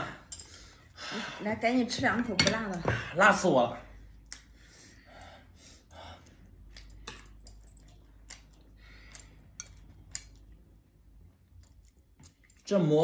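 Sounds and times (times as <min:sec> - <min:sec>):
chopsticks clicking on porcelain: 0:06.7 - 0:10.5.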